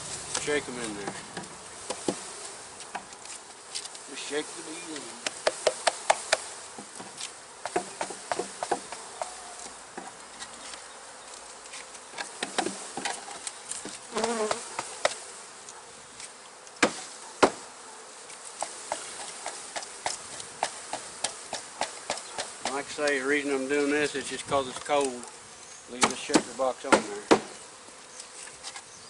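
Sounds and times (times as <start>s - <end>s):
honey bees buzzing: 0.0s - 29.0s
sharp wooden knocks: 7.7s - 9.3s, 26.0s - 27.6s.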